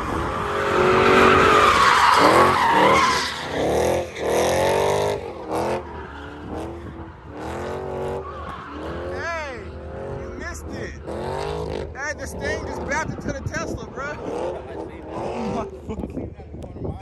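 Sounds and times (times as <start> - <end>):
car engine revving: 0.0 - 16.2
tyres screeching: 0.4 - 6.7.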